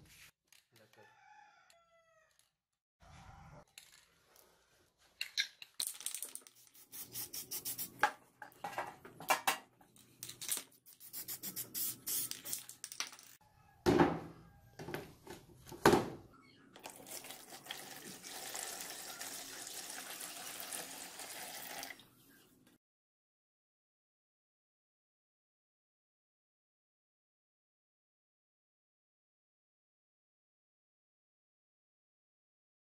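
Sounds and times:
liquid pouring into plastic tub: 16.8 - 22.0.

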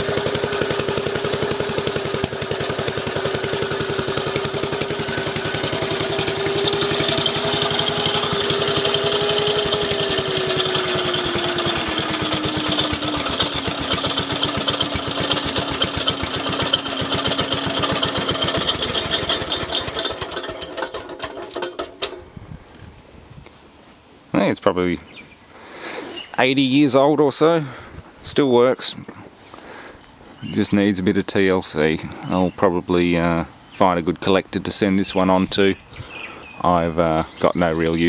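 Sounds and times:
tiller engine running: 0.0 - 22.3.

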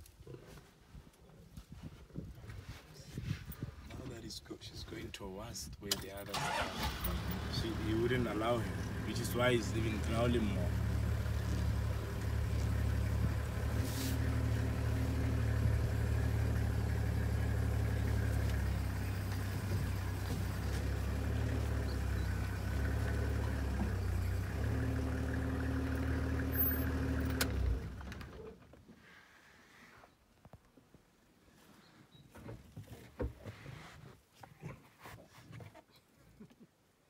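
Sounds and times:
vehicle engine humming: 6.4 - 28.3.

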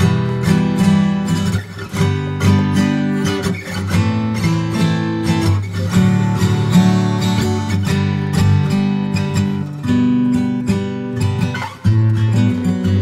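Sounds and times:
acoustic guitar strumming chords: 0.0 - 13.0.

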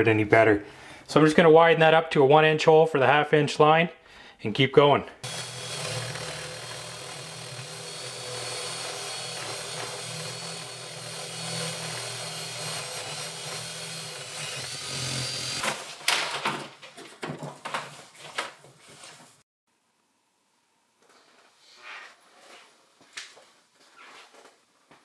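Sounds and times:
drill boring through wood: 5.2 - 15.7.

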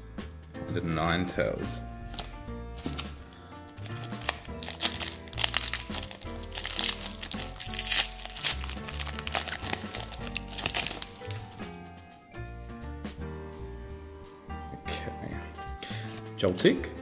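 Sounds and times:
background music: 0.0 - 17.0
foil wrapper crinkling: 2.1 - 11.6.

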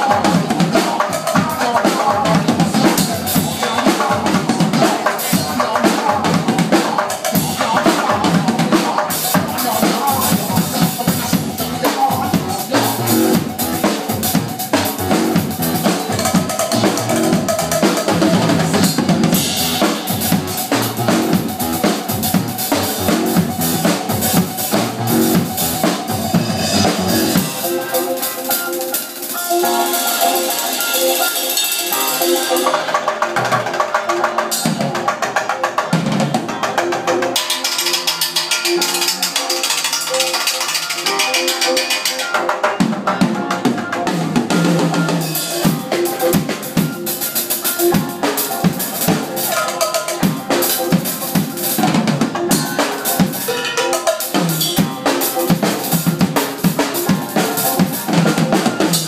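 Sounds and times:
drum kit played hard: 0.0 - 59.0
recorded song: 0.0 - 59.0.

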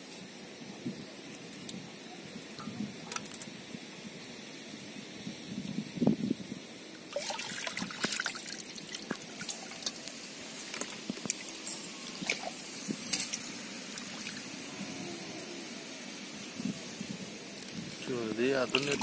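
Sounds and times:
small splashes and drips: 7.1 - 14.5, 17.9 - 19.0
hands sloshing in muddy water: 18.7 - 19.0.

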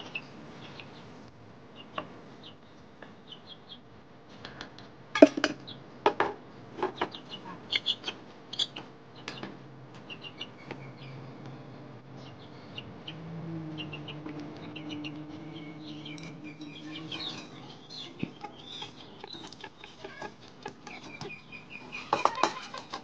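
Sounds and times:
spoon and dishes clinking: 5.2 - 5.6, 22.1 - 23.0
bird chirps: 7.0 - 22.8.

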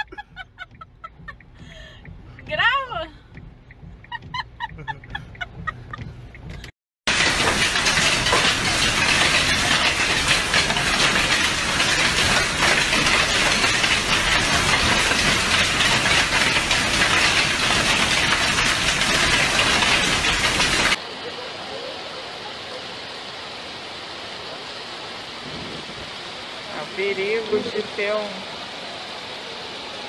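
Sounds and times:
torrential rain: 7.1 - 30.0.

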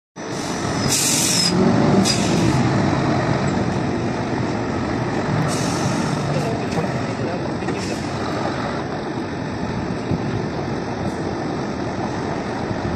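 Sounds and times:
diesel truck engine running: 0.2 - 12.9
air hissing bursts: 0.3 - 2.6, 5.4 - 6.3.

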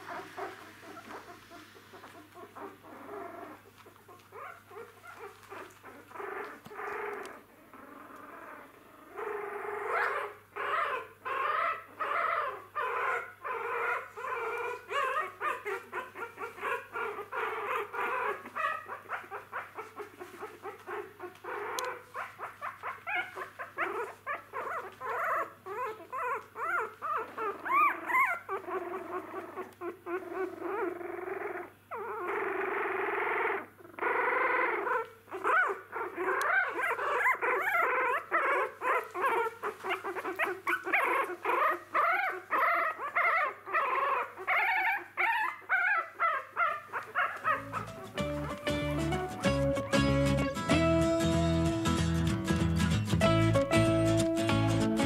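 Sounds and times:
puppies whimpering and squealing: 0.0 - 52.4.

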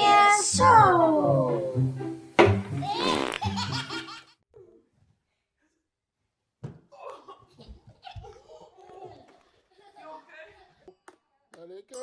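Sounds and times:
children's music jingle: 0.0 - 3.7
sudden thump: 2.4 - 2.7.

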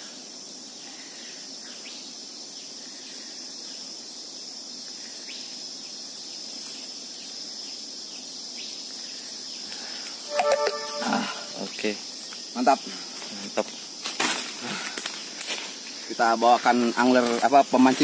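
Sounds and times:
insects chorus: 0.0 - 18.0
faint high chirp: 10.3 - 11.8.

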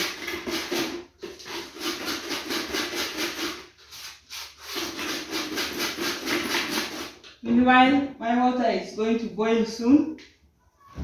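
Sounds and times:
hand scraping pulp through strainer: 0.0 - 7.2.

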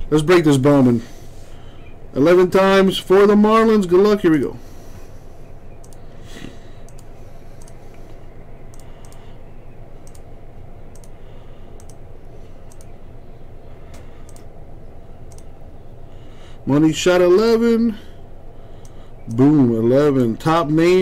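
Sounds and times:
low background hum: 0.0 - 21.0
computer mouse clicking: 5.8 - 6.1, 6.9 - 9.3, 10.0 - 10.3, 10.9 - 11.2, 11.8 - 13.0, 13.9 - 14.5, 15.3 - 15.5.

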